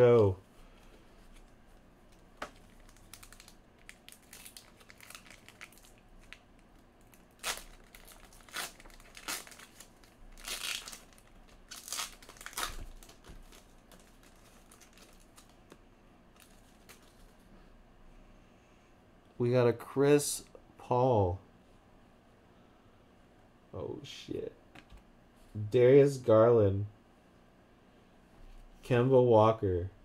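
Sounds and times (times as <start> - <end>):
foil wrapper crinkling: 2.1 - 17.4.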